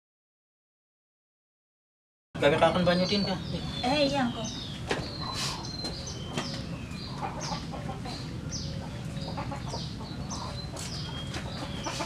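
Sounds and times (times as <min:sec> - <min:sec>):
low background hum: 0:02.4 - 0:12.0
chickens clucking: 0:04.6 - 0:12.0.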